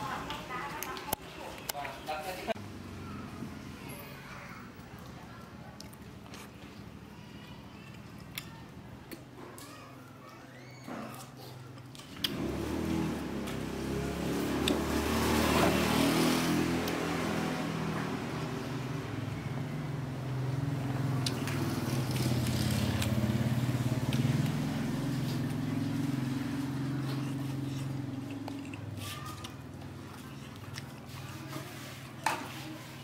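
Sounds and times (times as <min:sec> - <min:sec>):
motor engine running: 0:17.7 - 0:31.6.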